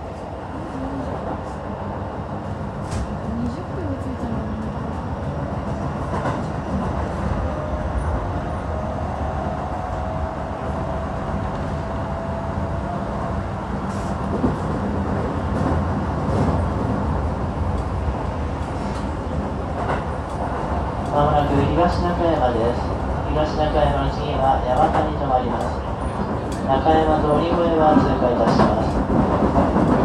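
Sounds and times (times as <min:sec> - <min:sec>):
train wheels rumbling on rail: 0:00.0 - 0:30.0.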